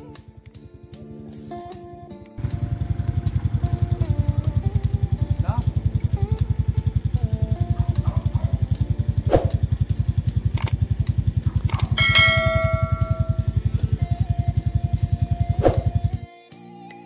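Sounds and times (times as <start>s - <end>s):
steady low pulse: 2.4s - 16.2s
bell ding: 12.0s - 13.6s.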